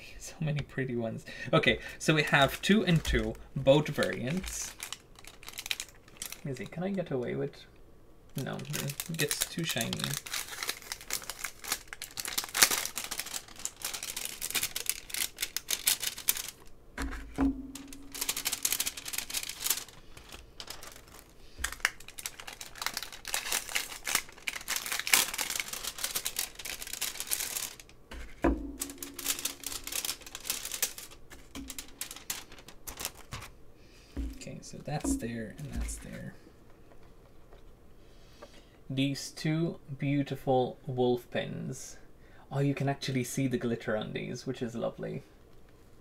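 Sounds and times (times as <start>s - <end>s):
plastic sleeves crinkling: 2.1s - 7.3s, 8.3s - 37.6s.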